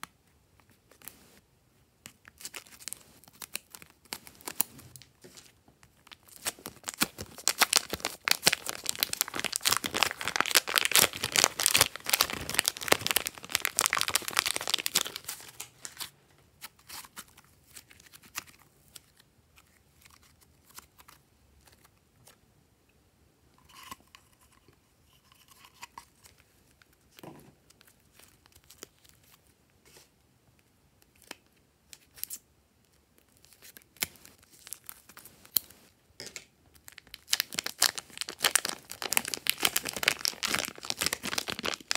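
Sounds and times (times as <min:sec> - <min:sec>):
plastic bag crinkling: 0:02.5 - 0:16.1, 0:36.8 - 0:41.9
sticky slime crackling: 0:05.8 - 0:16.0, 0:36.9 - 0:41.9.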